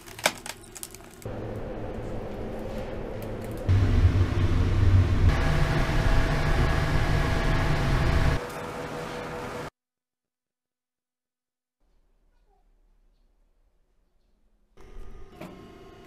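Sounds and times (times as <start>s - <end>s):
furnace roaring: 0.0s - 9.7s, 14.8s - 16.0s.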